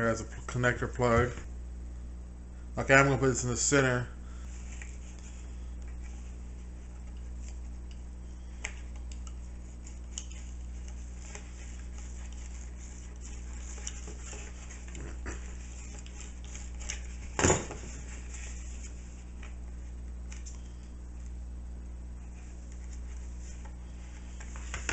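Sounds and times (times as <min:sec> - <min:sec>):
low electrical hum: 0:00.0 - 0:24.9
clicks and rustles of handling: 0:04.5 - 0:21.4, 0:22.2 - 0:24.9.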